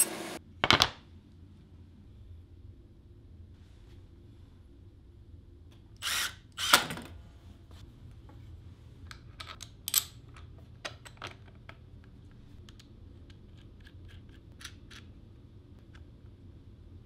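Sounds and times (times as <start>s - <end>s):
cordless driver whirring: 6.0s - 6.9s.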